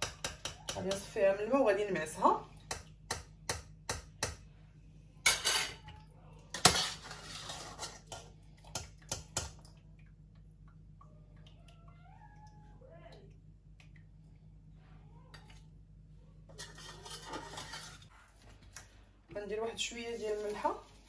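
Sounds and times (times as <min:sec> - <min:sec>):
metal utensils clinking on pot: 0:05.2 - 0:05.8, 0:16.5 - 0:18.1.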